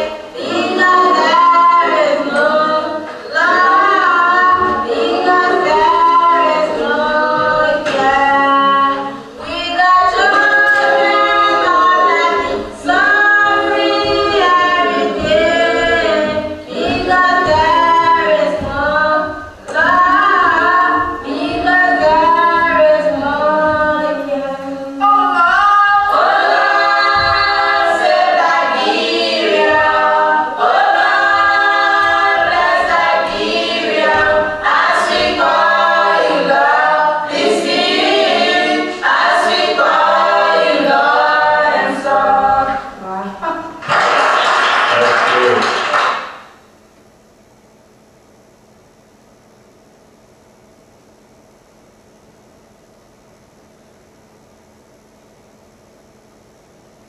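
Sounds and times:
choir singing a cappella: 0:00.0 - 0:43.8.

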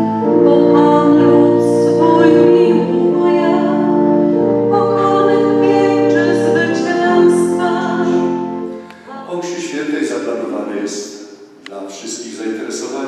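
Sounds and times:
music with singing: 0:00.0 - 0:09.9.

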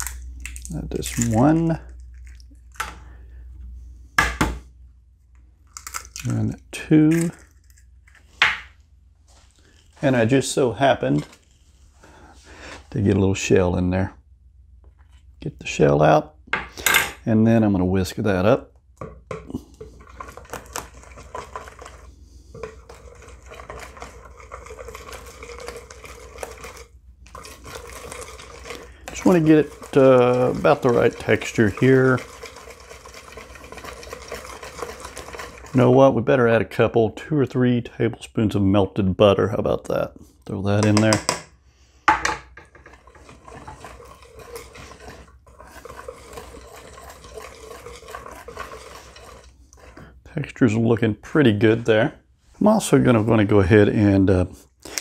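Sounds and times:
whisk beating batter in a bowl: 0:19.5 - 0:36.2, 0:42.7 - 0:50.2.

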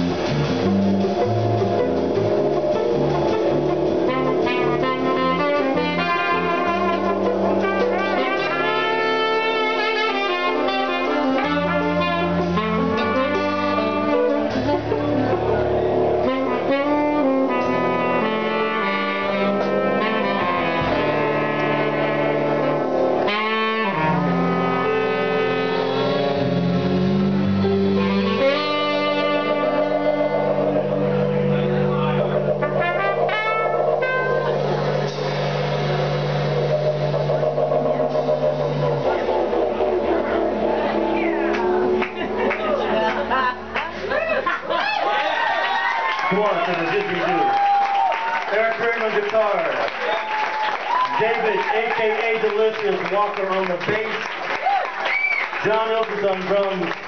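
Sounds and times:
trumpet: 0:00.0 - 0:43.8
saxophone: 0:00.0 - 0:44.2
didgeridoo: 0:00.0 - 0:44.4
bass line: 0:00.0 - 0:57.0.

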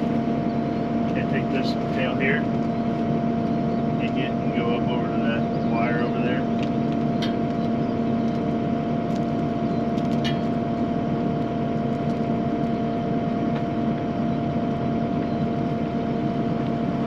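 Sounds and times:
engine idling hum: 0:00.0 - 0:17.0.

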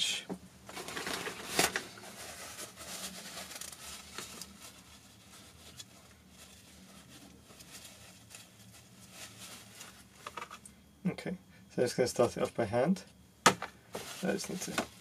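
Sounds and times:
handling and rustling: 0:00.6 - 0:10.6, 0:13.5 - 0:15.0.

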